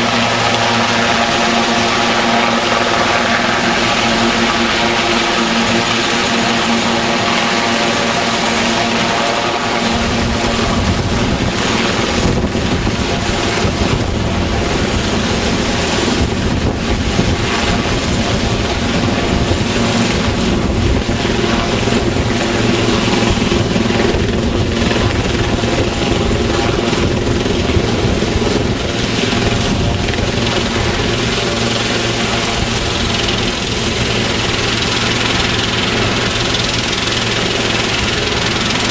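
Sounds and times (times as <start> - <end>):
helicopter rotor beat: 0.0 - 38.9
high turbine whine: 0.0 - 38.9.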